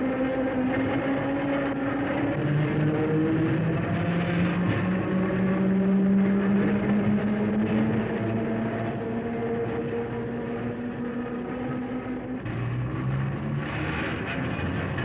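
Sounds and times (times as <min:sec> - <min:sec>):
electric railcar motor hum: 0:00.0 - 0:15.0.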